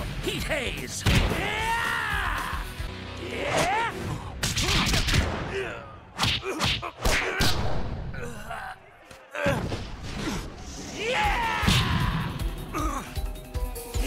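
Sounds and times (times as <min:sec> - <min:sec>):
person crying out strained: 0:12.7 - 0:13.2.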